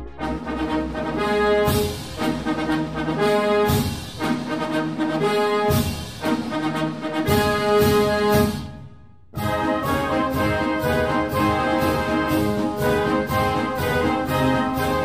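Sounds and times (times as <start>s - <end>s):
brass chords over a beat: 0.0s - 15.0s.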